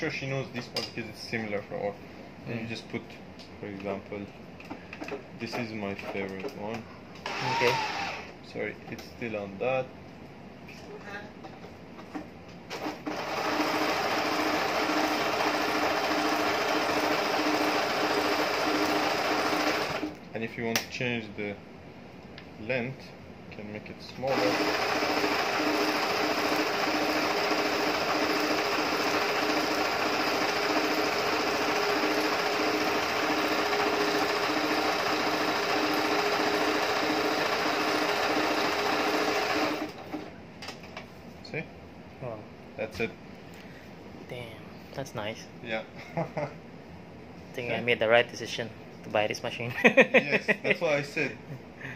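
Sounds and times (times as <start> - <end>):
sewing machine stitching: 12.7 - 20.2, 24.3 - 40.3.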